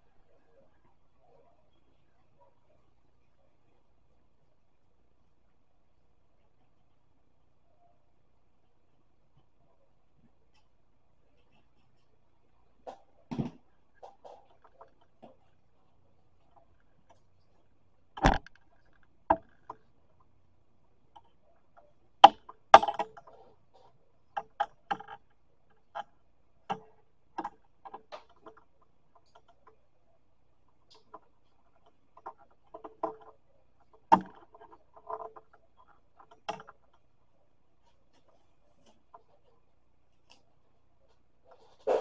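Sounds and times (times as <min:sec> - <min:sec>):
clicks and knocks of small tools: 0:21.2 - 0:26.1.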